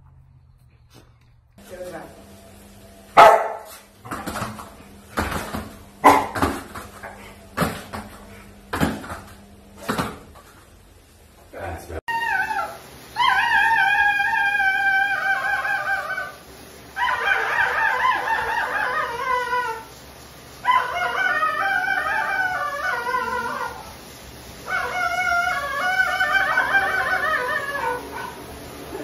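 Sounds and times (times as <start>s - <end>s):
dog howling: 12.1s - 16.4s, 17.0s - 20.0s, 20.6s - 24.0s, 24.6s - 29.0s.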